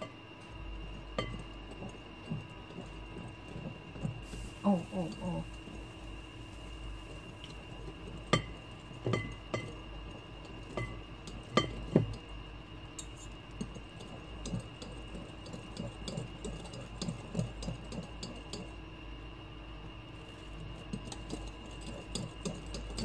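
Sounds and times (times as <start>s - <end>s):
utensil clinking glass bowl: 1.2s - 1.9s, 8.2s - 9.8s, 10.4s - 12.2s.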